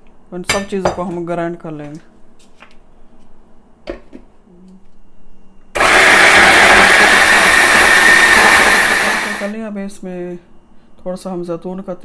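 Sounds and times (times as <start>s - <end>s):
food processor grinding: 5.8s - 9.5s.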